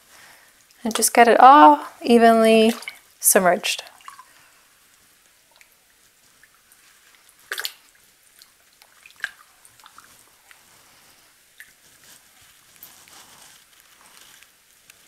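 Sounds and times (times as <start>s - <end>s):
water sloshing and dripping in tub: 0.6s - 12.9s
small water splashes: 2.4s - 11.8s.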